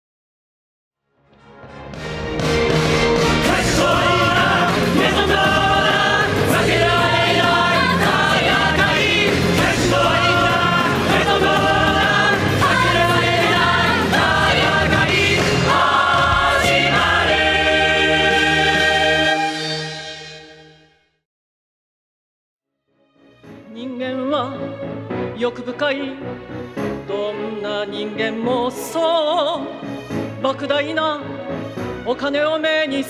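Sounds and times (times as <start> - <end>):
band accompaniment: 1.4 - 20.7
group of voices singing: 3.1 - 19.9.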